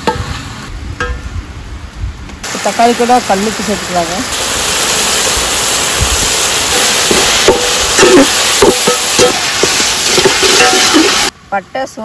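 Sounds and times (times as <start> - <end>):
vegetables sizzling in hot oil: 2.4 - 11.4
metal spatula scraping a pan: 6.7 - 11.3.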